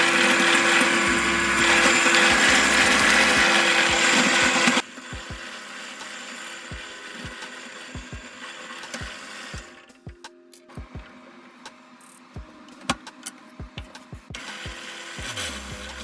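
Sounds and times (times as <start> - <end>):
electric power tool cutting wood: 0.0 - 9.6, 14.4 - 16.0.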